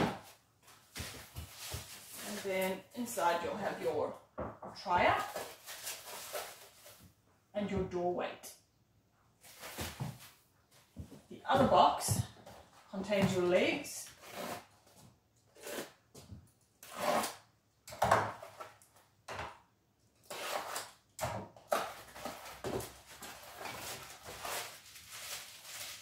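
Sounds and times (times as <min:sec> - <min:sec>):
cardboard rustling and scraping: 0:00.0 - 0:02.7, 0:05.1 - 0:07.0, 0:09.4 - 0:11.0, 0:21.8 - 0:26.0.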